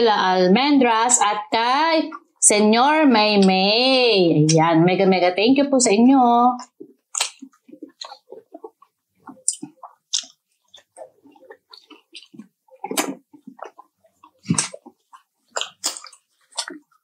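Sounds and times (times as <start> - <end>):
chewing crispy chicken: 6.6 - 17.0.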